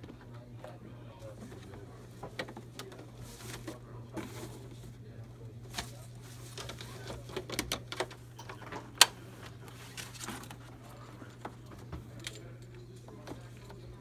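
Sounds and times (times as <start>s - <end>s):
plastic and cardboard rustling: 0.0s - 12.4s.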